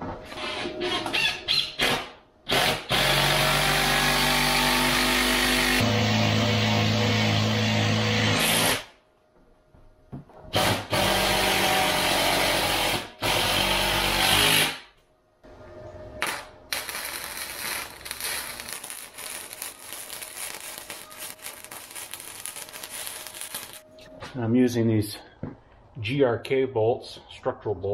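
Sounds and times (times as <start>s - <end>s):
welding gun crackling sizzle: 16.2s - 23.9s.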